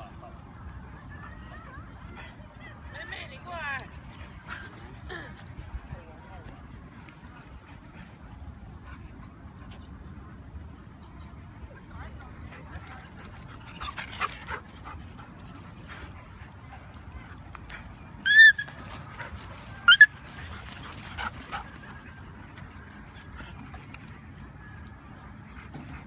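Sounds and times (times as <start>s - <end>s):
dog yelping: 18.2s - 18.8s, 19.8s - 20.2s.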